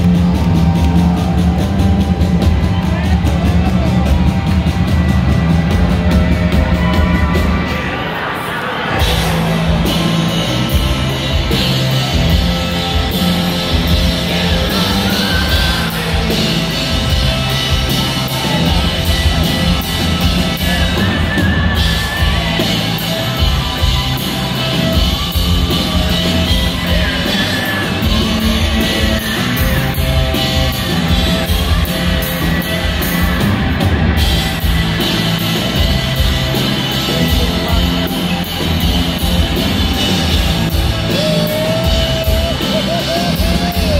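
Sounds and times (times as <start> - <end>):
bass: 0.0 - 43.9
drums: 0.0 - 43.9
electric guitars: 0.0 - 43.9
lead vocals: 13.6 - 23.5, 40.7 - 43.9
person yelling: 41.1 - 43.9.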